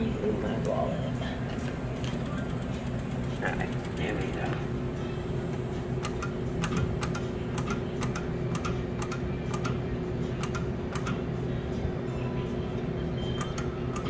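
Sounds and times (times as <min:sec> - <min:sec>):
steady low hum: 0:00.0 - 0:14.0
game machine clicking: 0:06.0 - 0:09.8, 0:10.4 - 0:11.2, 0:13.4 - 0:14.0.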